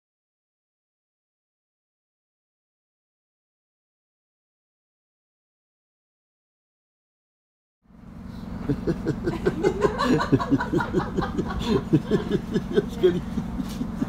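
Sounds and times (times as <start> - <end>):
train low drone: 7.9 - 14.0
person laughing: 8.6 - 14.0.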